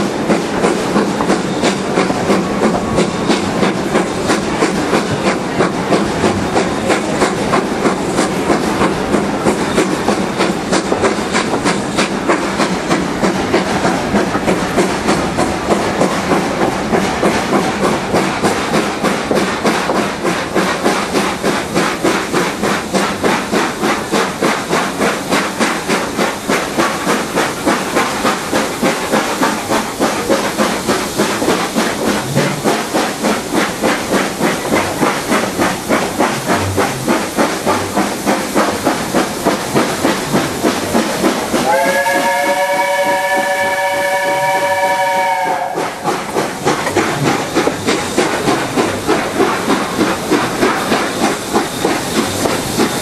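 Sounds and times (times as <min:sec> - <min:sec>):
steam locomotive exhaust beats: 0:00.0 - 0:53.0
steam whistle chord: 0:41.6 - 0:45.8.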